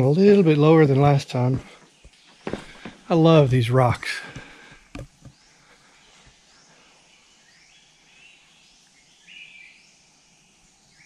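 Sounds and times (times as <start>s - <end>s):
soft hiss: 0.0s - 11.0s
small knock: 4.3s - 5.4s
bird calls and chirps: 4.3s - 11.0s.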